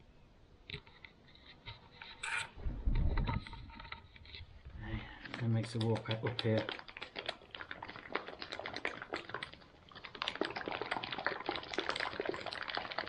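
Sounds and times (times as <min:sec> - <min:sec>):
liquid sloshing in pouch: 0:05.0 - 0:13.0
pouch crinkling: 0:05.1 - 0:13.0.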